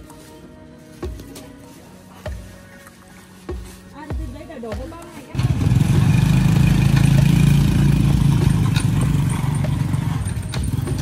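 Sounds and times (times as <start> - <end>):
tractor diesel engine chugging: 5.3 - 11.0.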